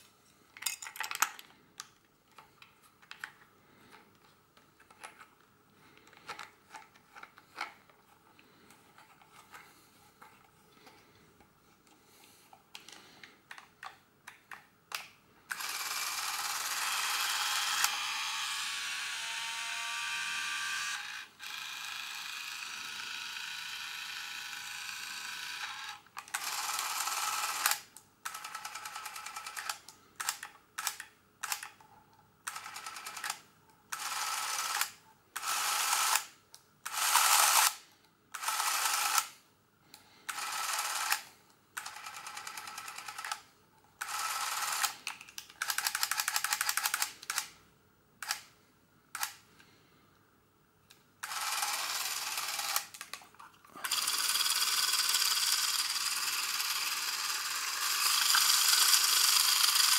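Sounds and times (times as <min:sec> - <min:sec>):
film camera motor running: 0:15.5 - 0:29.7, 0:34.0 - 0:34.8, 0:35.4 - 0:36.2, 0:36.9 - 0:37.7, 0:38.4 - 0:39.2, 0:40.3 - 0:41.2, 0:44.0 - 0:45.0, 0:51.2 - 0:52.9, 0:53.8 - 0:59.9.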